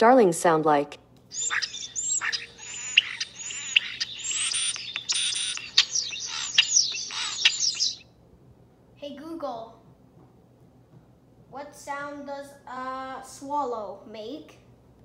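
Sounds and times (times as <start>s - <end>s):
recorded starling song from small speaker: 1.3s - 8.1s.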